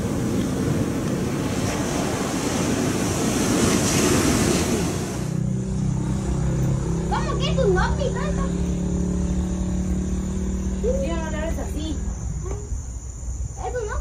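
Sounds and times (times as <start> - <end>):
ocean surf: 0.0 - 8.6
rushing wind: 0.0 - 14.0.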